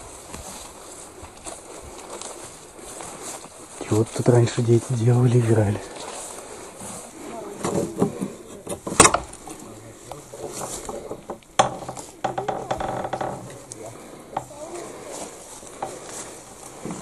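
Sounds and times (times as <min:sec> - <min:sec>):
door creak: 0:10.6 - 0:13.8.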